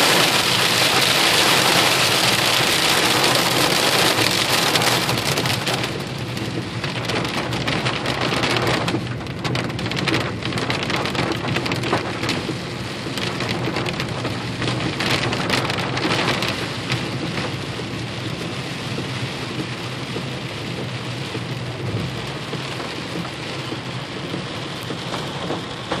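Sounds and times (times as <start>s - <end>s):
hailstones ticking: 0.0s - 18.1s, 18.9s - 26.0s
heavy rain on car roof: 0.0s - 26.0s.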